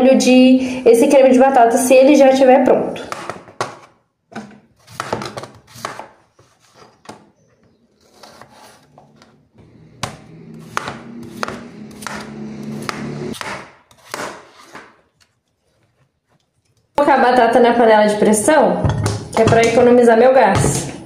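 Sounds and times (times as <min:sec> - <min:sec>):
knife chopping potatoes on board: 0:04.8 - 0:06.2, 0:10.0 - 0:15.0.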